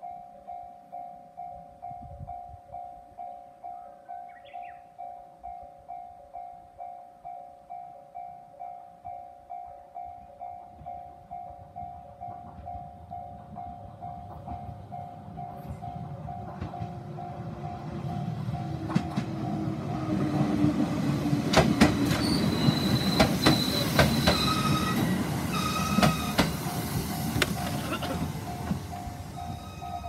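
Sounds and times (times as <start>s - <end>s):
electric train passing: 0.0s - 30.0s
wheels clicking over rail joints: 12.3s - 19.8s, 20.4s - 30.0s
train wheels squealing: 21.4s - 30.0s.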